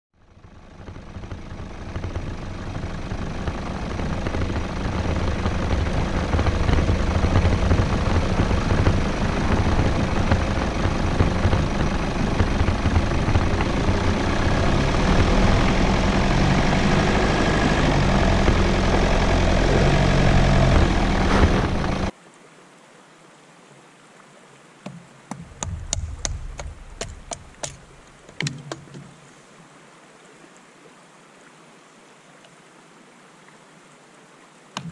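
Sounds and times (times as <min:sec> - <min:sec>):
vehicle driving on rocky track: 0:00.2 - 0:22.1, 0:25.4 - 0:29.1
faint running stream: 0:00.2 - 0:34.9
hatchet splitting kindling: 0:24.9 - 0:29.1.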